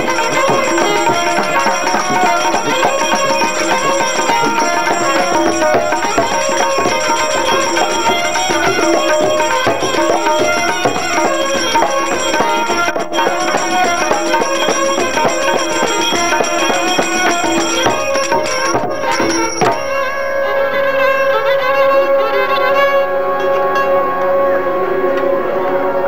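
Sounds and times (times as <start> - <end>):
tabla strokes: 0.0 - 20.3
violin playing: 0.0 - 26.0.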